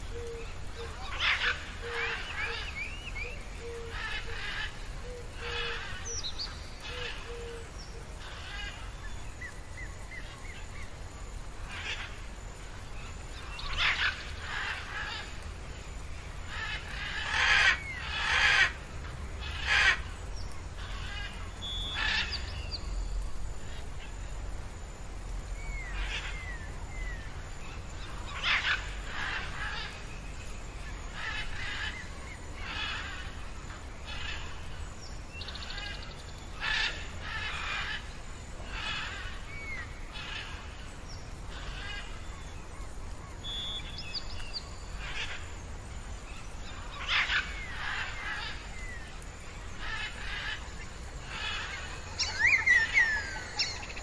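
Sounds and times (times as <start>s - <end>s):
rough bird calls: 43.4s - 54.0s.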